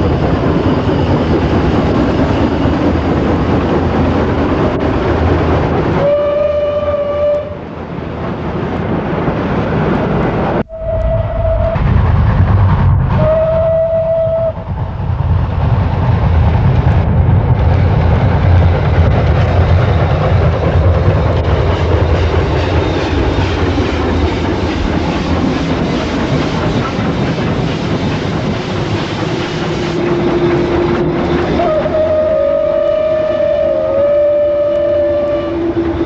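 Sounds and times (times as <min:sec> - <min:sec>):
steam train rumbling past: 0:00.0 - 0:36.0
steady low tone: 0:10.6 - 0:15.5.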